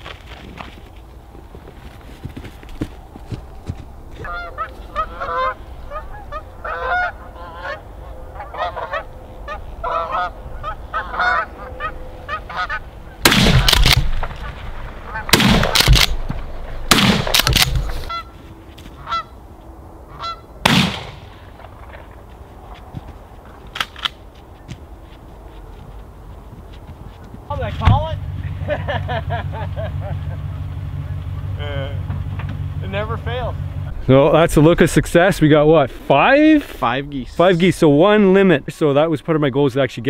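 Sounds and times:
geese honking: 3.6 - 15.8, 17.8 - 20.7
shotgun blasts: 13.2 - 18.1, 20.6 - 21.5.

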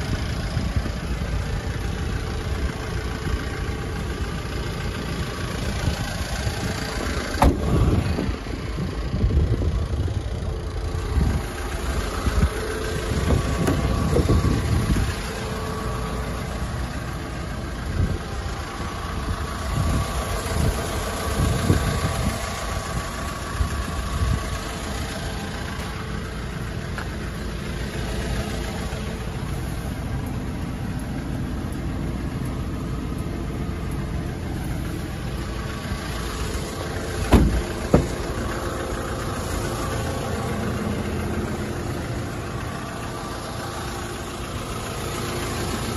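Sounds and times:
diesel engine idling: 0.0 - 45.9
sharp knocks: 37.3 - 38.2.

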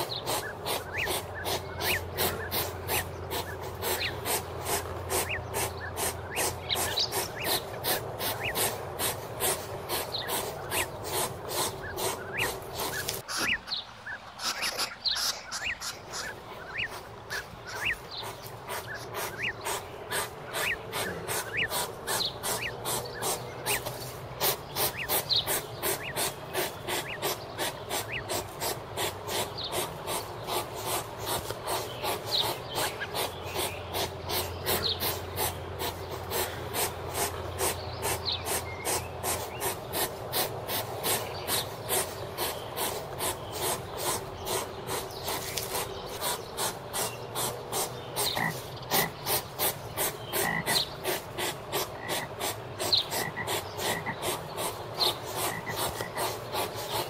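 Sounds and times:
hedgehog snuffling: 0.0 - 13.6, 14.4 - 57.0.

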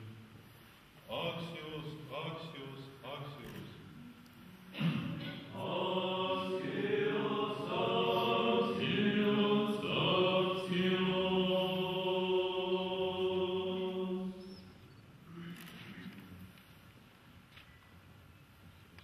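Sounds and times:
liturgical chant: 1.0 - 3.8, 4.8 - 14.8.

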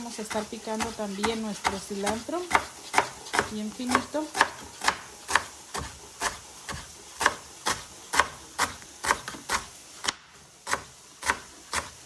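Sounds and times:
knife chopping on cutting board: 0.2 - 12.0.

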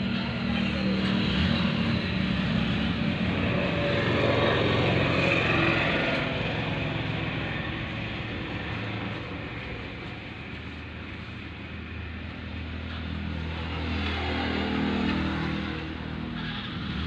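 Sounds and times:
vehicle engine passing: 0.0 - 10.8, 11.9 - 17.0.

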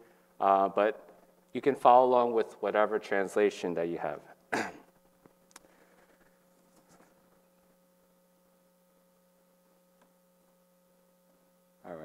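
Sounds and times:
faint electrical mains hum: 0.0 - 12.0.

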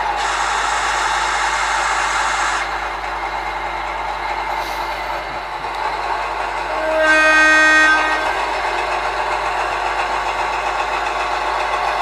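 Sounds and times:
hiss: 0.0 - 3.0, 4.5 - 5.2
train horn: 6.6 - 8.7.

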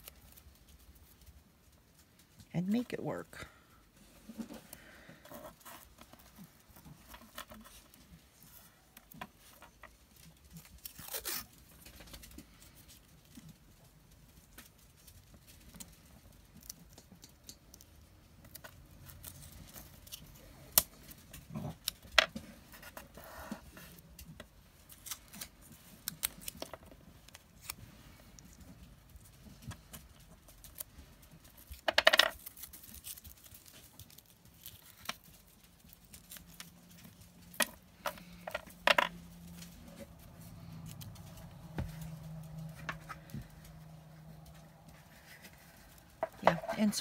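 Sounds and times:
tape peeling and tearing: 10.2 - 12.2, 14.9 - 22.1, 24.8 - 28.6, 29.8 - 37.6
soft rustles: 32.4 - 47.0.

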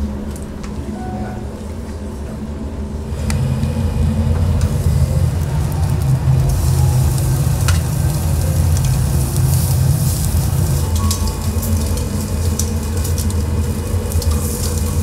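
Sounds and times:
low hum: 0.0 - 15.0
steak sizzling: 3.2 - 15.0.

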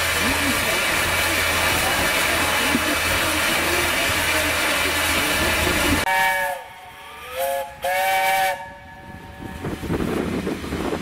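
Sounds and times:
steam hissing: 0.0 - 11.0
steam locomotive whistle: 6.0 - 9.8.

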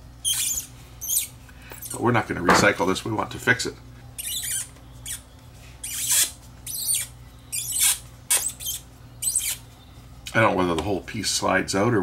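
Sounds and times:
faint steady hum: 0.0 - 12.0
plastic squeaking and scraping: 4.2 - 9.6.

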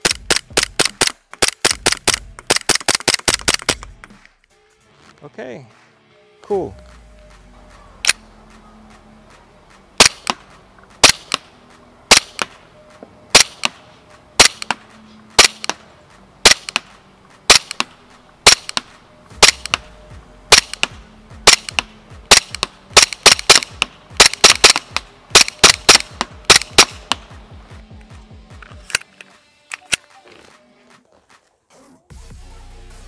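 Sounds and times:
airsoft pistol shots: 0.0 - 3.9, 10.0 - 10.4, 11.0 - 11.5, 12.1 - 12.6, 13.3 - 13.8, 14.4 - 14.8, 15.4 - 15.8, 16.4 - 16.9, 17.5 - 19.9, 20.5 - 27.3.

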